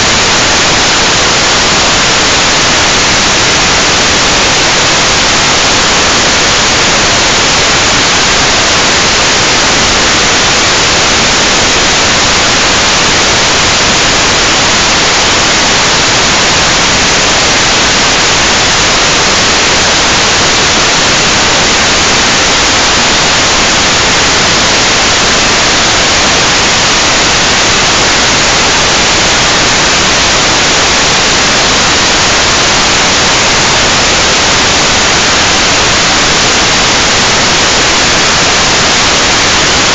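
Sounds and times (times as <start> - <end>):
loud static hiss: 0.0 - 39.9.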